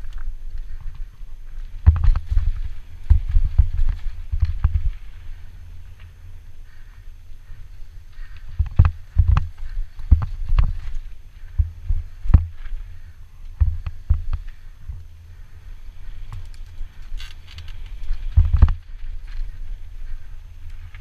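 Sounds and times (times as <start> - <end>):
wind rumble on microphone: 0.0 - 21.0
bike suspension knocking and clattering: 1.6 - 5.0, 8.2 - 12.7, 13.6 - 15.0, 16.3 - 19.5.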